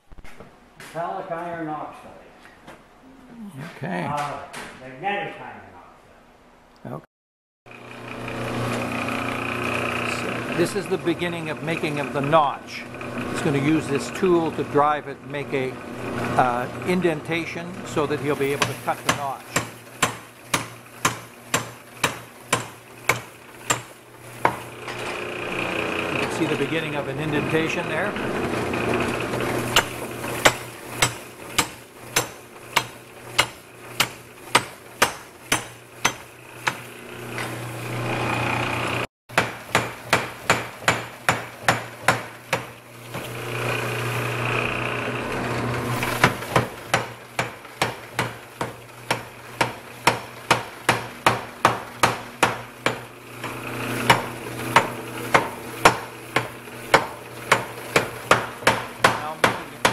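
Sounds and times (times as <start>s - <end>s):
machine hum: 7.7s - 19.9s, 22.8s - 34.6s, 35.8s - 39.1s, 42.8s - 46.8s, 52.8s - 59.9s
power hammer blows on steel: 16.0s - 38.5s, 45.9s - 59.9s.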